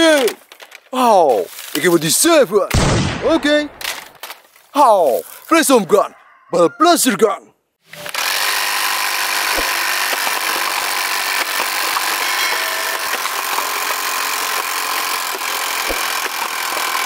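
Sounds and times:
toy ball blaster whirring: 7.8s - 17.0s
plastic cups knocked over: 9.5s - 10.7s.

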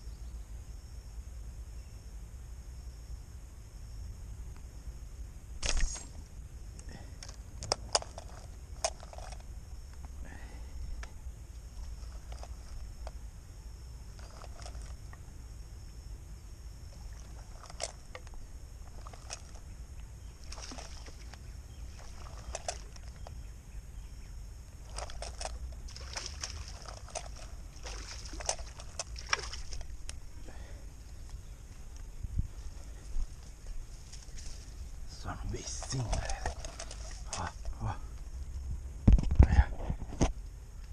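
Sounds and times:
steady low rumble: 0.0s - 40.9s
fishing line clicks and rustles: 5.6s - 10.2s, 10.8s - 13.2s, 14.0s - 15.2s, 16.9s - 23.4s, 24.8s - 32.1s, 33.1s - 40.4s.

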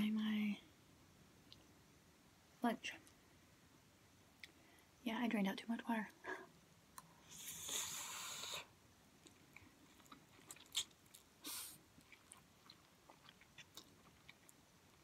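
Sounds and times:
soft chewing clicks: 9.2s - 11.3s, 12.0s - 15.0s.

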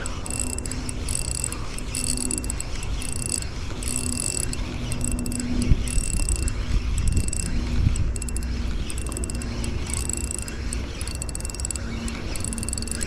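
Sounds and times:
fishing reel gears whirring: 0.0s - 13.0s.

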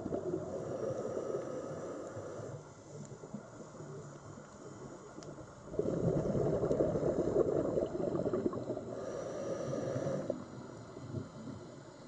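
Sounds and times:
underwater breath bubbling: 5.6s - 11.6s.

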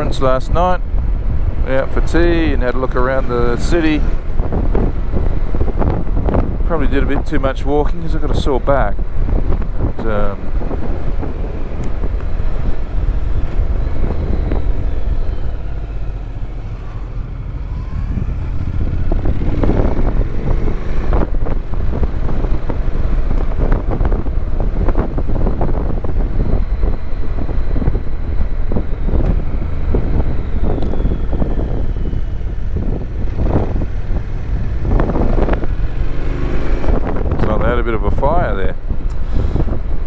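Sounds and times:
wind noise on microphone: 0.0s - 40.0s
motorcycle engine running: 9.0s - 37.8s.

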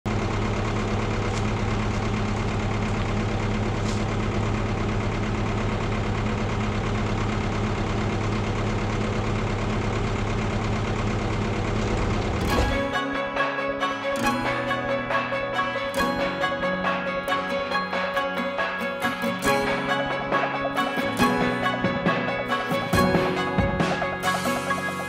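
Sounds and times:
diesel engine idling: 0.1s - 25.0s
music: 12.4s - 25.0s.

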